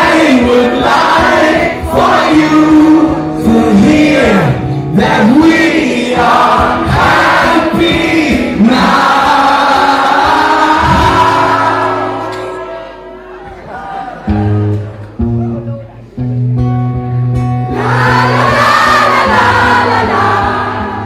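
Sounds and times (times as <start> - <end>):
voices singing wordless melody: 0.0 - 12.3, 17.7 - 21.0
live band playing loudly: 0.0 - 13.2.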